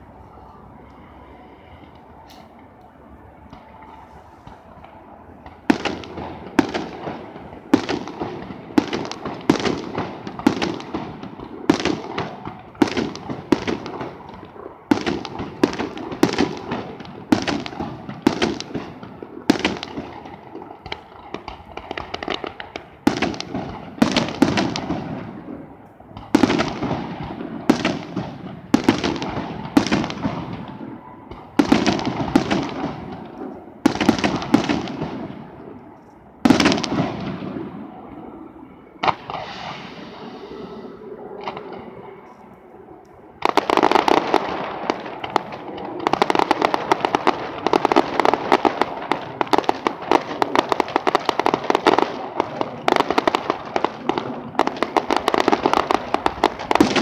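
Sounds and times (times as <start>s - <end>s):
echoing rumble: 36.5s - 47.7s.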